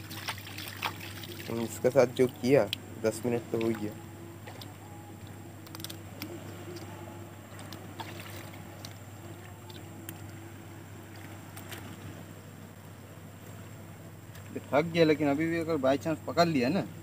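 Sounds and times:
crab clicks and water splashes: 0.0s - 4.7s, 7.5s - 10.2s
steady low hum: 0.0s - 17.0s
faint tone: 1.8s - 12.4s.

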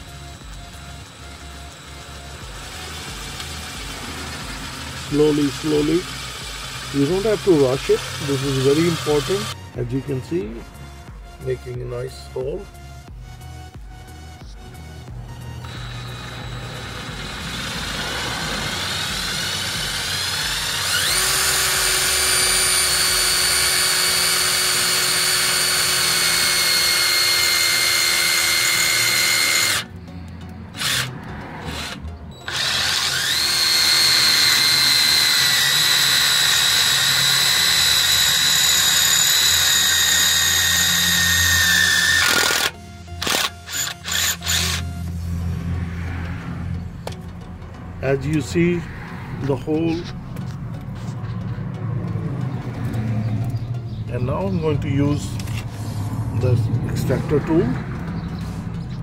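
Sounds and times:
cordless drill whining: 0.0s - 10.6s, 14.3s - 29.9s, 30.8s - 31.1s, 31.7s - 45.1s.

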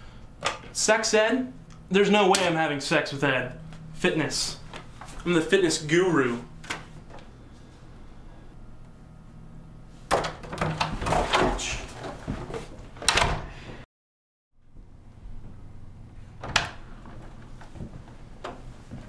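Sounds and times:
office door opening and shutting: 6.5s - 7.3s, 10.0s - 13.8s, 16.2s - 18.9s.

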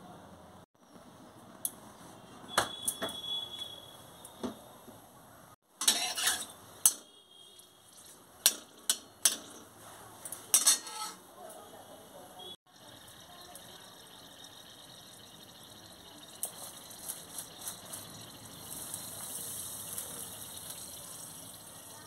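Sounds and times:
metal spatula scraping a pan: 5.8s - 7.0s, 10.5s - 11.3s.

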